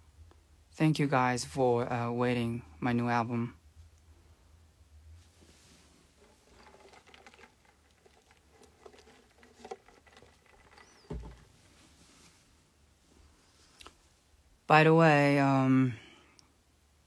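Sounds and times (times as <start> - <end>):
plastic cup and straw rattling: 6.1 - 11.9.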